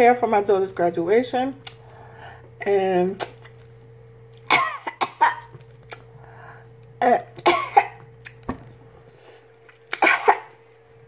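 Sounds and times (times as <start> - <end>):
lip smacks and clicks: 1.6 - 1.8, 3.2 - 4.5, 5.6 - 6.1, 8.2 - 8.5.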